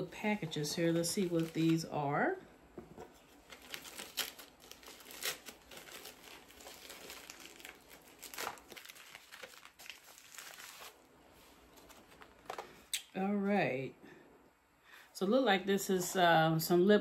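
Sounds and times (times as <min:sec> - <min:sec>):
packaging crinkling and rustling: 0:00.8 - 0:01.9, 0:03.0 - 0:12.9.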